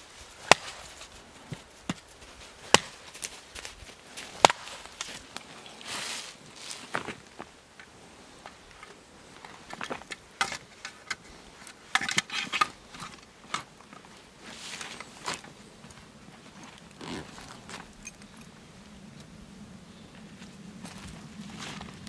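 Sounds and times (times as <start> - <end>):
gear rustling: 8.6 - 18.5
metal buckles clinking: 16.9 - 18.6.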